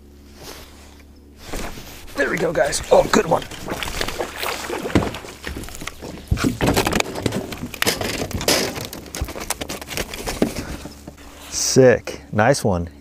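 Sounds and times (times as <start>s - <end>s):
fish splashing in water: 3.0s - 6.4s.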